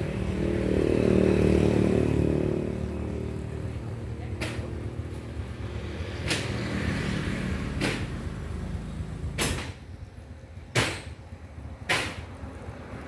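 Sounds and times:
sharp knocks: 7.8s - 8.2s, 9.4s - 9.8s, 10.7s - 11.2s, 11.8s - 12.4s.

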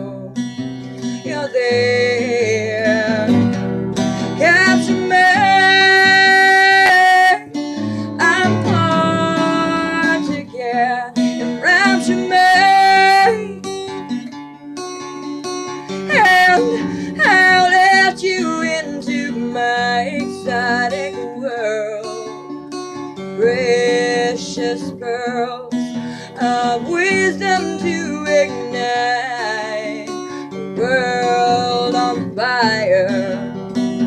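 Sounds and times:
acoustic guitar: 0.0s - 34.0s
person singing long notes: 1.2s - 13.7s, 15.9s - 22.3s.

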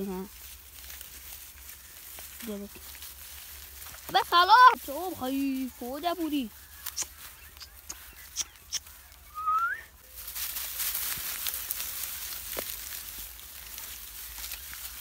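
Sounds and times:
straw rustling and crackling: 0.0s - 15.0s.

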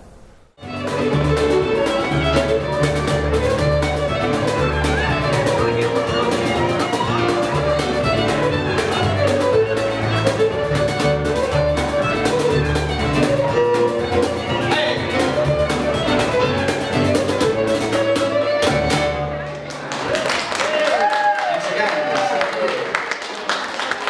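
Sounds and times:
fiddle melody: 0.6s - 19.7s
plucked upright bass: 0.6s - 19.7s
cajon beat: 0.6s - 19.9s.

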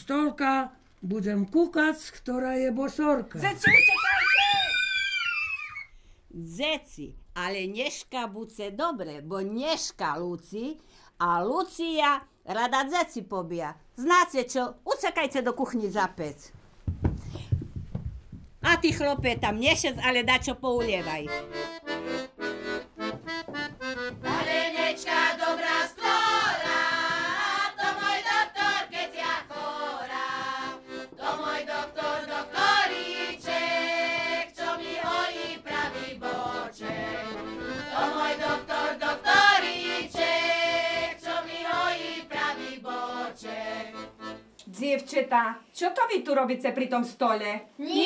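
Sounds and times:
accordion playing folk tune: 20.8s - 44.6s
people singing along: 24.2s - 44.1s.

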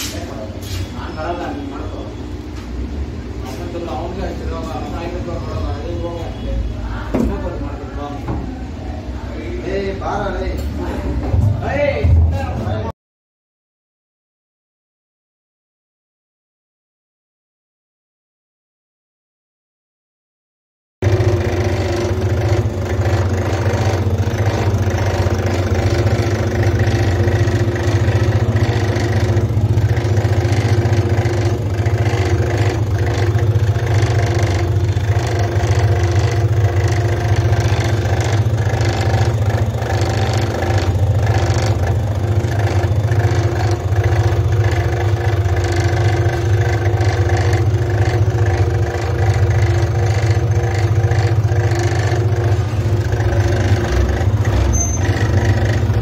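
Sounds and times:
pressure washer pump humming: 21.0s - 56.0s.

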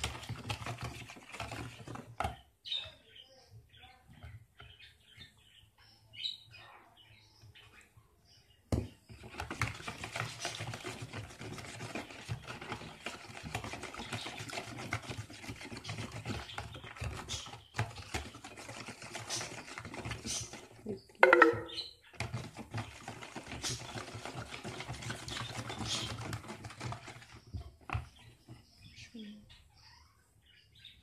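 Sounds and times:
whisk beating batter in bowl: 0.0s - 2.4s, 8.8s - 28.8s
sharp knock: 21.2s - 21.8s.

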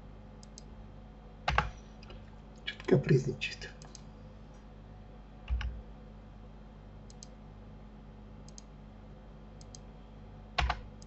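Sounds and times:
low electrical hum: 0.0s - 11.0s
computer mouse clicking: 0.4s - 0.7s, 3.8s - 4.1s, 5.5s - 5.8s, 7.1s - 7.4s, 8.5s - 8.7s, 9.6s - 9.9s, 10.6s - 11.0s.

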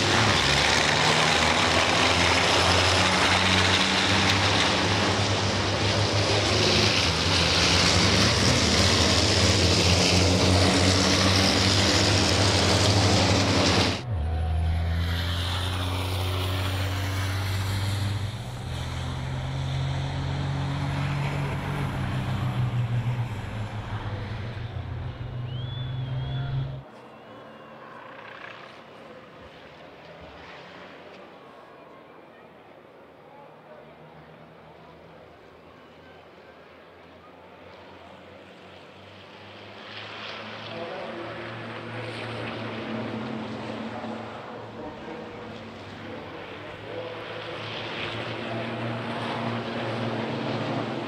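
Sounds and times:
loud rushing noise: 0.0s - 26.8s
diesel truck engines racing: 0.0s - 31.4s, 32.5s - 51.0s.

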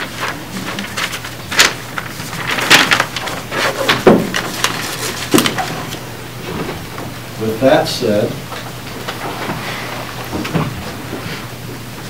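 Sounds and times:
steady low hum: 0.0s - 12.0s.

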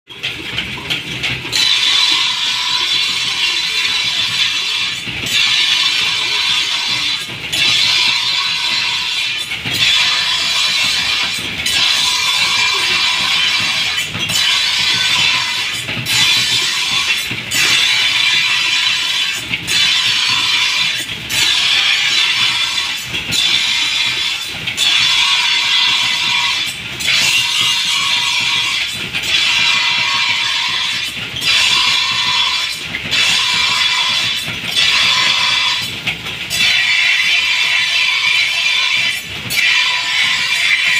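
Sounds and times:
blade on grinding wheel: 0.2s - 40.9s.

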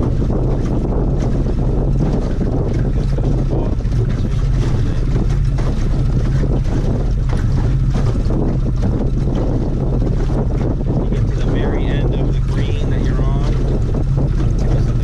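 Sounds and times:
outboard motor humming: 0.0s - 15.0s
wind buffeting microphone: 0.0s - 15.0s.

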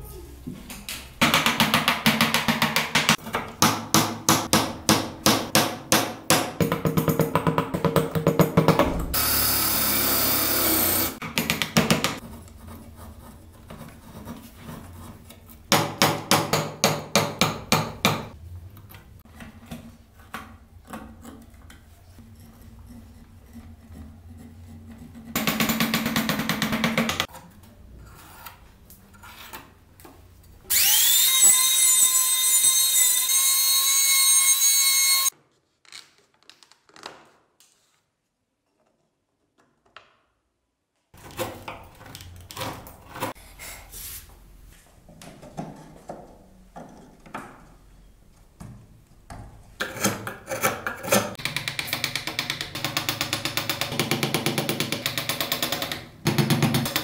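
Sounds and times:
power tool cutting wood rattle: 9.2s - 11.2s, 30.7s - 35.3s
power tool motor whine: 30.7s - 35.3s.

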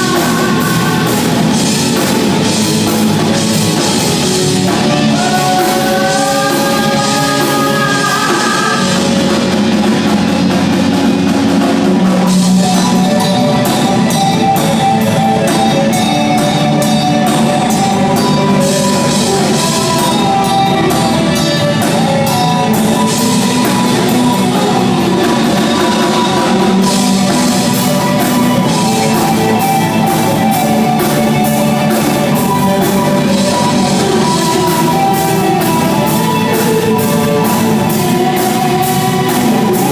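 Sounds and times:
cymbal-driven drumming: 0.0s - 39.9s
gliding lead guitar line: 0.0s - 39.9s
rock band playing: 0.0s - 39.9s.

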